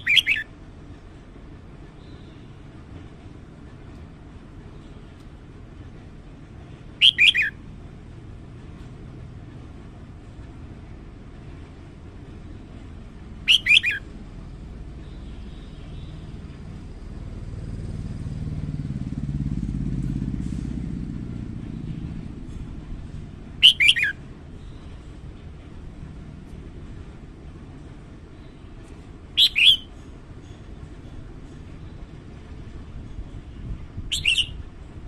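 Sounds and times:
bird song phrases: 0.0s - 0.5s, 2.0s - 2.6s, 7.0s - 7.5s, 13.5s - 14.0s, 29.4s - 30.6s, 33.5s - 34.6s.

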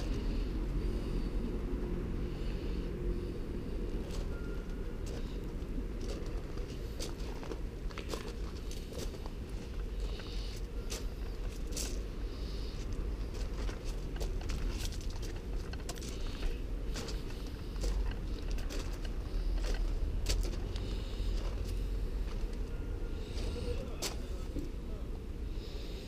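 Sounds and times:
steady low rumble: 0.0s - 26.0s
footsteps crunching on gravel: 5.0s - 12.1s, 12.8s - 22.6s.

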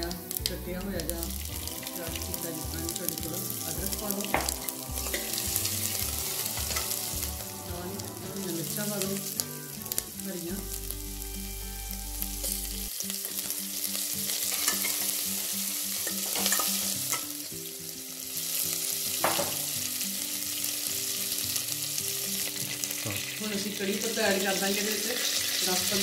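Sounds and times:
spices sizzling in hot ghee: 0.0s - 26.0s
ladle scraping a pot: 4.5s - 7.4s.

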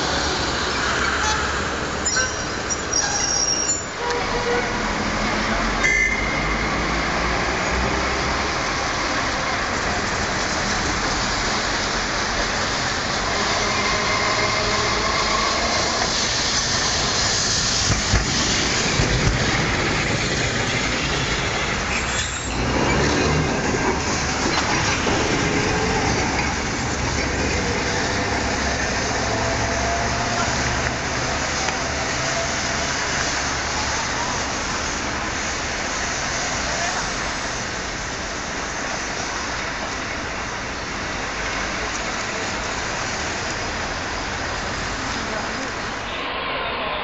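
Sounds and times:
city traffic noise: 0.0s - 47.0s
faint tram whine: 6.2s - 39.8s, 44.2s - 47.0s
tram wheels clattering on rails: 7.7s - 40.3s.

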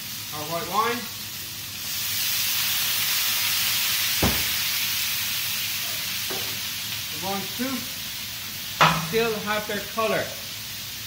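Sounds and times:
wine sizzling in a hot wok: 0.0s - 11.0s
sharp knock: 4.2s - 4.6s.

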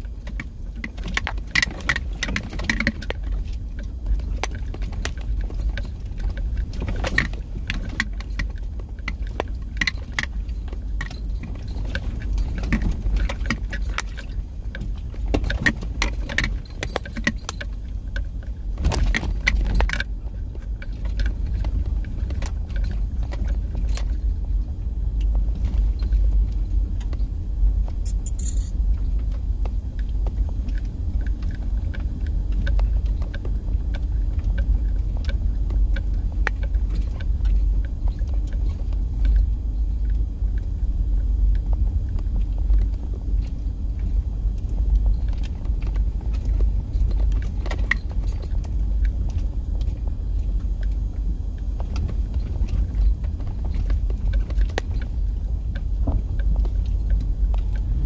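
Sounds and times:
car cabin rumble on rough ground: 0.0s - 58.0s
clinking and rattling: 28.0s - 28.8s.

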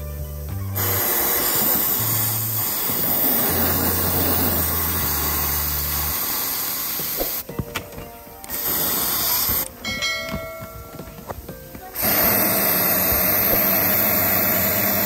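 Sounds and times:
aerosol spray hissing: 0.0s - 7.5s, 8.4s - 9.8s, 11.9s - 15.0s
background music with low bass: 0.0s - 15.0s.

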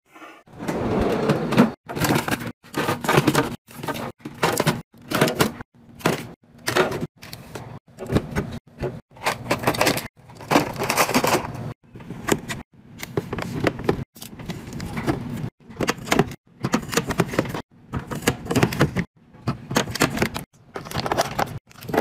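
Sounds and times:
plastic packs clattering: 1.9s - 11.7s, 19.7s - 22.0s.

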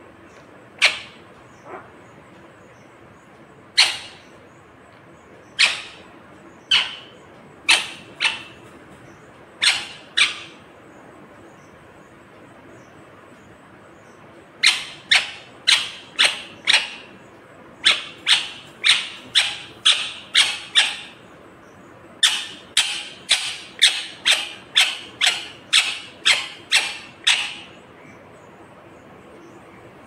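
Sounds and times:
parakeet screeching: 3.8s - 4.3s, 5.6s - 8.7s, 9.6s - 10.6s, 14.6s - 17.1s, 17.8s - 21.2s, 22.2s - 27.8s.

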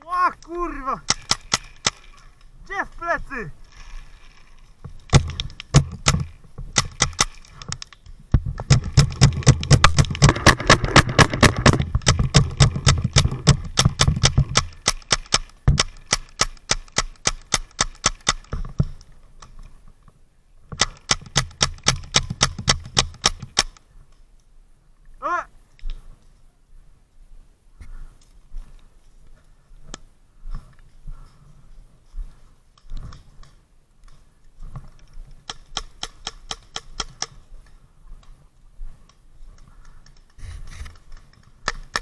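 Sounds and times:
paintball gun rapid fire: 1.0s - 2.1s, 5.1s - 7.4s, 8.6s - 18.5s, 20.8s - 23.7s
sharp gun crack: 1.0s - 2.1s, 8.7s - 18.5s.

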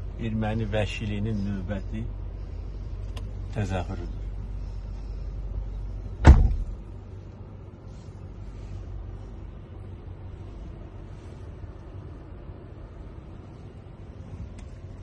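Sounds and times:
vehicle rumble: 0.0s - 15.0s
car door slamming: 6.2s - 6.9s.

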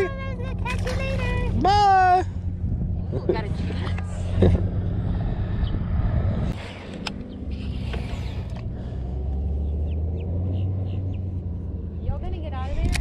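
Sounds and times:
outboard motor running: 0.0s - 5.4s.

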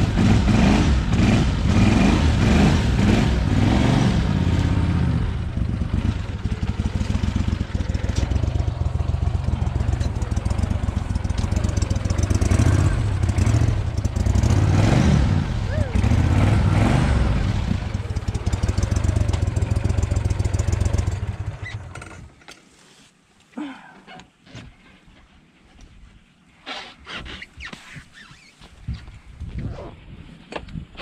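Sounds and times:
boat motor droning: 4.3s - 21.2s.

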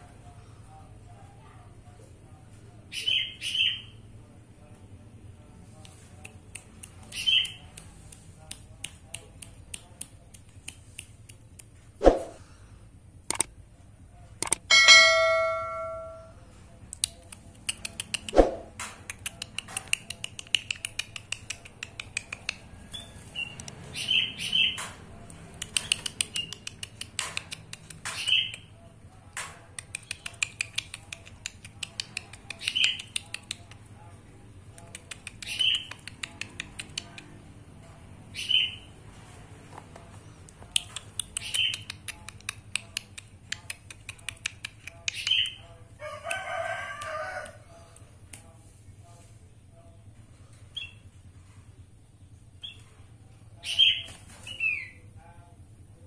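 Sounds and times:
sharp bird clicks: 6.3s - 11.7s, 13.3s - 13.5s, 14.4s - 14.6s, 16.9s - 28.7s, 29.8s - 33.8s, 34.8s - 37.3s, 40.5s - 45.6s.

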